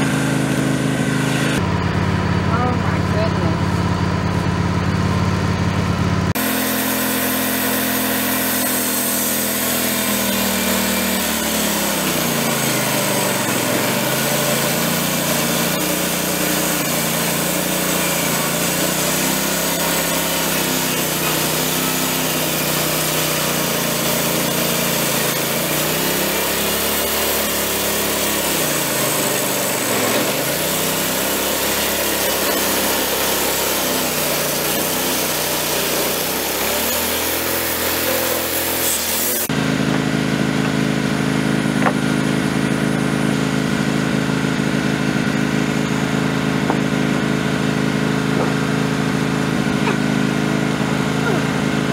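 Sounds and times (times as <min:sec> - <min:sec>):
sawmill engine running: 0:00.0 - 0:51.9
band saw blade hissing: 0:06.4 - 0:39.5.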